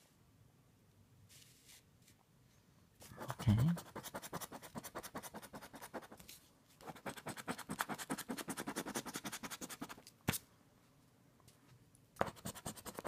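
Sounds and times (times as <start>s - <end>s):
scratching lottery ticket: 3.2s - 6.2s, 6.8s - 10.0s, 12.2s - 13.0s.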